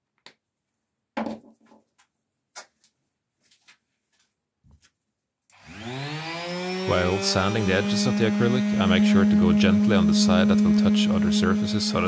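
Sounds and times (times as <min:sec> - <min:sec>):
objects knocking on wooden workbench: 0:01.2 - 0:01.8.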